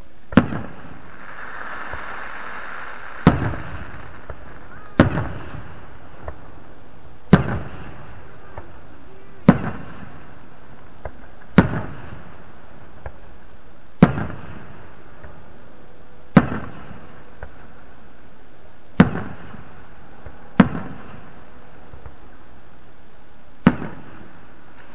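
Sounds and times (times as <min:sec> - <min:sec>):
fireworks bursting with bangs: 0:00.0 - 0:15.5, 0:16.3 - 0:17.9, 0:18.9 - 0:22.5, 0:23.6 - 0:24.9
faint fireworks pops: 0:00.3 - 0:15.5, 0:16.3 - 0:17.8, 0:18.9 - 0:22.3, 0:23.6 - 0:24.9
rumbling echo: 0:00.4 - 0:15.6.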